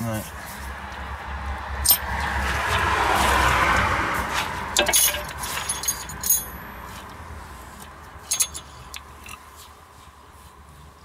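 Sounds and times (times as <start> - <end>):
rough noise: 1.8 - 6.6, 7.7 - 9.5
metal tools clinking: 4.8 - 6.6, 8.2 - 9.4.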